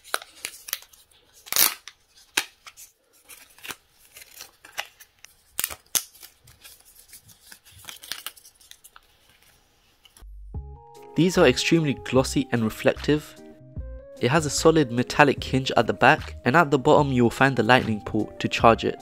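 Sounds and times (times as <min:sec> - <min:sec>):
plastic film crackling: 0:00.0 - 0:10.2.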